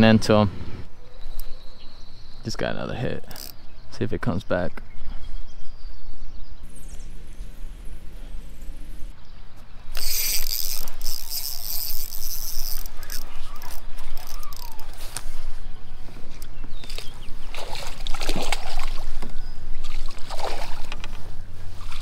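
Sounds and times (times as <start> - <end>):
fishing reel ticking: 3.2 - 3.6, 9.9 - 15.5
fish splashing: 17.4 - 19.2.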